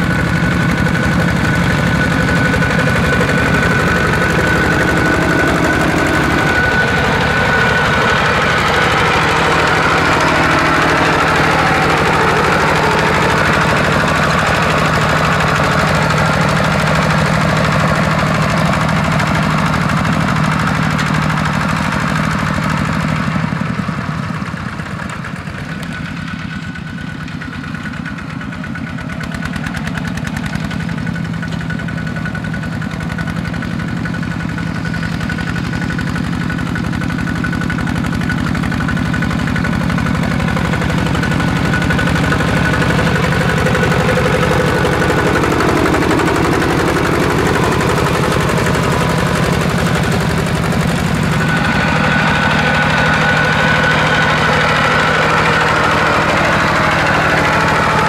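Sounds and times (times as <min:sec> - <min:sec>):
diesel tractor engines running: 0:00.0 - 0:58.0.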